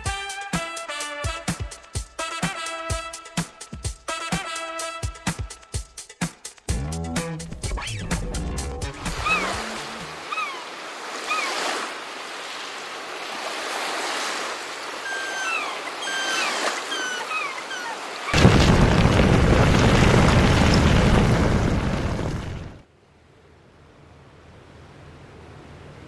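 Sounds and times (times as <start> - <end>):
ocean surf: 8.9 - 22.8
short high falling calls: 9.1 - 11.8, 14.9 - 18.4.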